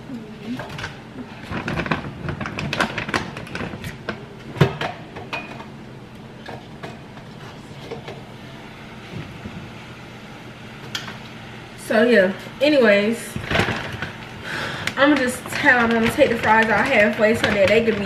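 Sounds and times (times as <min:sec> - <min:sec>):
steady low hum: 0:00.0 - 0:18.0
food packaging and cookware clattering: 0:00.5 - 0:05.8, 0:13.3 - 0:18.0.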